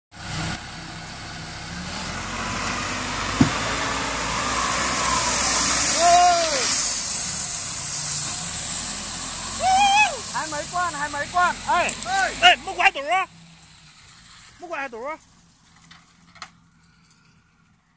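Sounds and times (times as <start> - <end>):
truck engine running: 0.1 - 17.2
sharp knock: 3.4 - 3.7
person calling out: 9.6 - 13.3
gravel crunching and scraping: 13.9 - 17.9.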